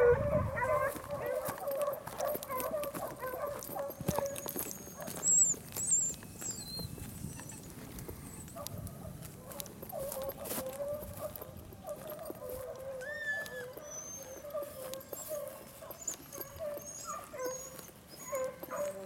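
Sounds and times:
dogs baying: 0.0s - 19.0s
high chirping bird calls: 3.9s - 8.6s.

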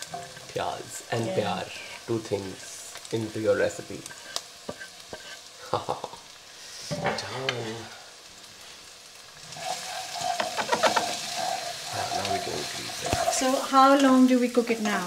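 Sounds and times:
onions sizzling in oil: 0.0s - 15.0s
stirring in pan: 0.0s - 15.0s
knocks on frying pan: 10.4s - 11.2s.

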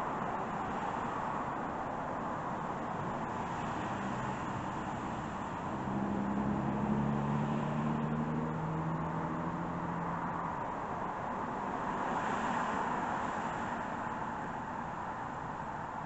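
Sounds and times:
engine hum: 3.5s - 10.7s.

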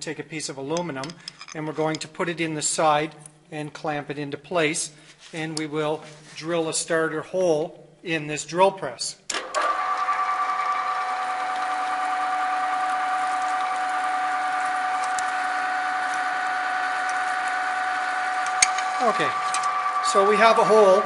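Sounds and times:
drill press motor whining: 9.3s - 21.0s
drill boring through aluminum: 9.4s - 21.0s.

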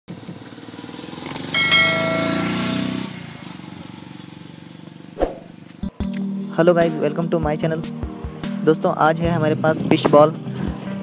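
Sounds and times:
bell chime: 1.5s - 2.9s.

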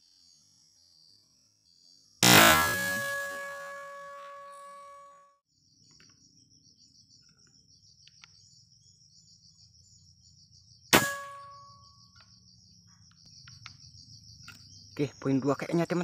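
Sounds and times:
air rifle shot crack: 2.2s - 3.5s, 11.0s - 11.4s
short metallic ring: 2.2s - 5.3s, 11.0s - 11.8s
insects trilling: 5.5s - 16.0s.

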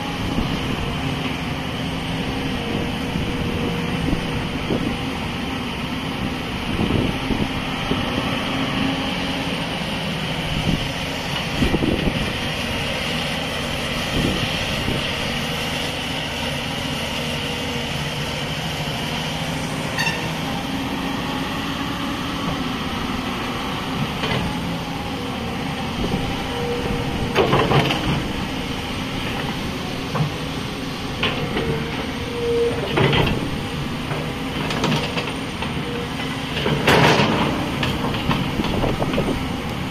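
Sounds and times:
excavator engine and hydraulics: 0.0s - 39.9s
excavator bucket clanks and knocks: 27.3s - 28.2s, 32.8s - 33.5s, 36.5s - 39.3s.

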